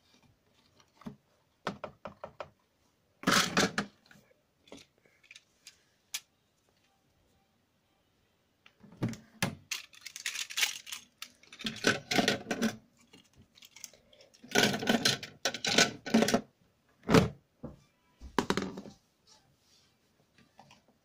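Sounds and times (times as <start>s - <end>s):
toy cars clattering in plastic: 9.6s - 16.4s.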